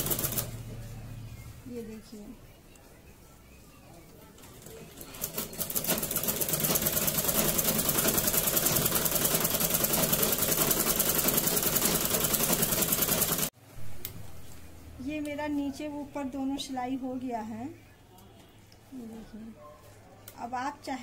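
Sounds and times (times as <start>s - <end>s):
sewing machine stitching: 0.0s - 0.6s, 4.4s - 13.5s.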